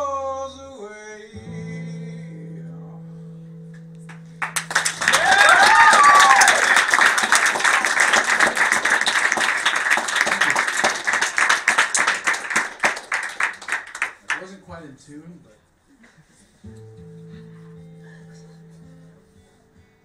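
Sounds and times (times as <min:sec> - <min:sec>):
audience applauding: 0:04.2 - 0:14.6
person whooping: 0:04.9 - 0:08.0.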